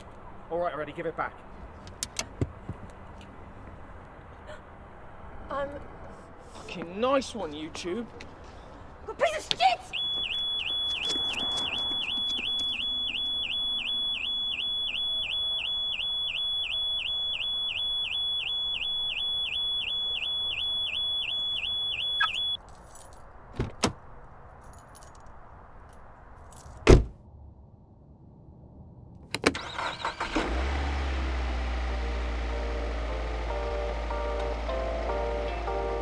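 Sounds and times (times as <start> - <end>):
car alarm siren wailing: 9.9 - 22.6
car door shutting: 26.8 - 27.1.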